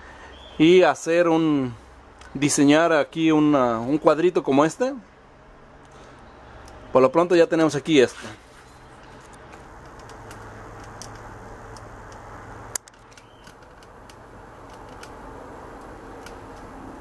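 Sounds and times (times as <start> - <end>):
microwave oven humming: 9.5 - 17.0.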